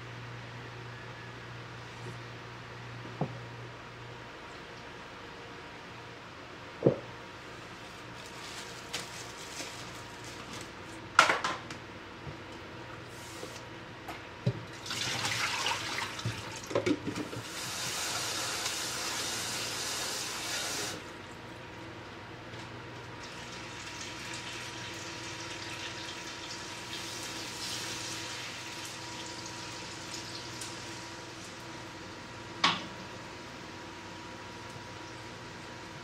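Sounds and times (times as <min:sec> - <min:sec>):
tap water running: 0:14.8 - 0:21.0.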